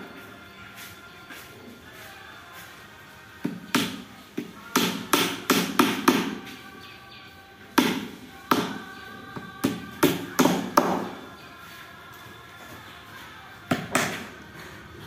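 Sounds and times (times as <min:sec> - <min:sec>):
hammer striking nails: 0:04.7 - 0:06.4, 0:09.6 - 0:11.2.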